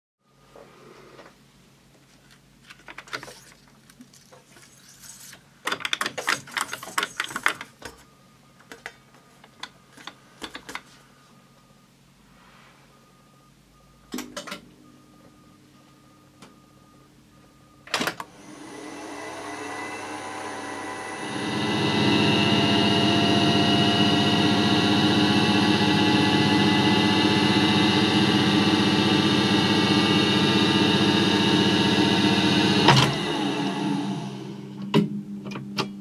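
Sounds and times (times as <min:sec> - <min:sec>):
tape transport running: 0:17.9 - 0:35.6.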